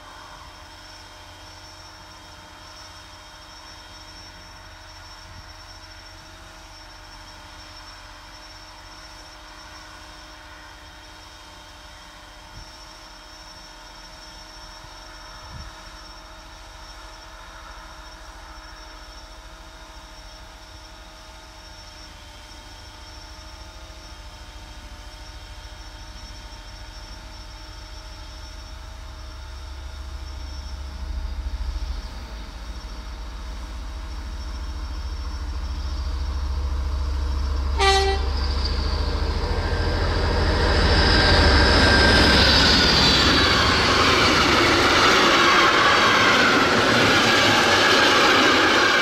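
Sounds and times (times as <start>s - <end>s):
train wheels roaring: 0.0s - 49.0s
locomotive engine rumbling: 27.7s - 49.0s
locomotive horn blast: 37.8s - 38.6s.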